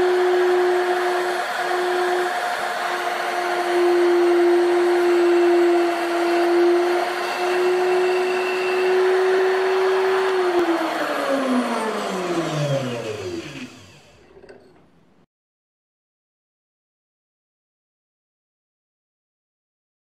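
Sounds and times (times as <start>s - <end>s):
grinder motor whining: 0.0s - 14.9s.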